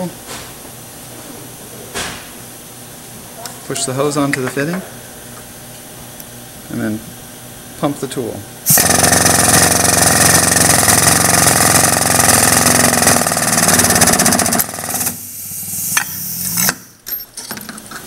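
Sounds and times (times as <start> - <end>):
hydraulic pump chattering: 8.7 - 15.2.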